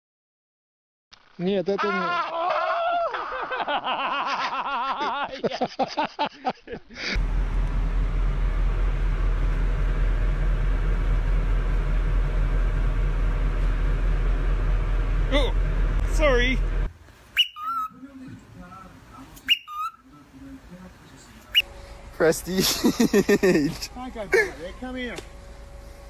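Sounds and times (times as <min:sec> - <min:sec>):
excited voice: 0:01.8 - 0:03.2
people laughing: 0:01.8 - 0:07.2, 0:22.5 - 0:24.6
steady low rumble: 0:07.2 - 0:17.1.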